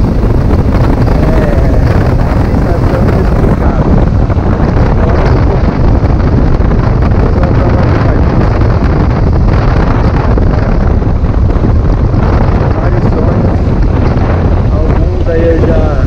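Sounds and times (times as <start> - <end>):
road noise: 0.0 - 16.0
wind rushing over microphone: 0.0 - 16.0.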